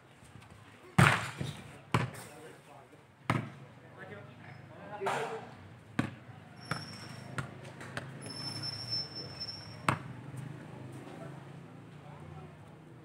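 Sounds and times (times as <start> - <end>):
football being kicked: 1.0 - 2.2, 6.0 - 6.8.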